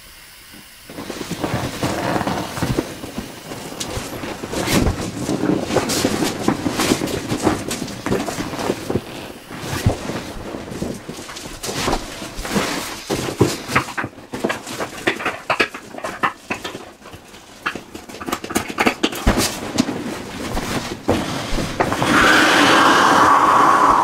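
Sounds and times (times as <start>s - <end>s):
vinyl rubbing and squeaking: 0.9s - 23.3s.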